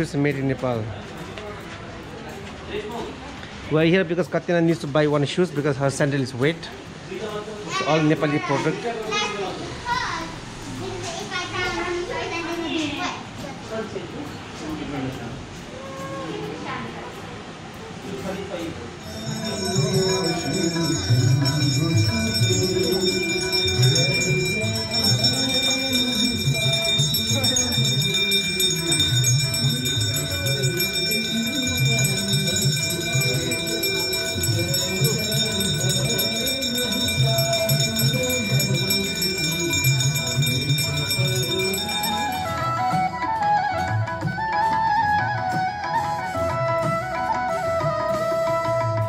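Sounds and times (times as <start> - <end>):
low voices: 15.6 - 43.0
music with high ringing tones: 19.0 - 43.0.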